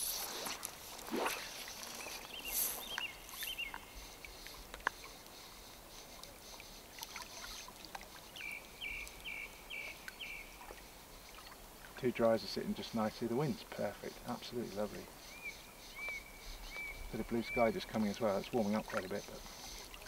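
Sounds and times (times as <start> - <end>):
fly line swishing through air: 0.0 - 3.8
small birds chirping: 0.0 - 6.7, 7.4 - 11.6, 13.0 - 19.9.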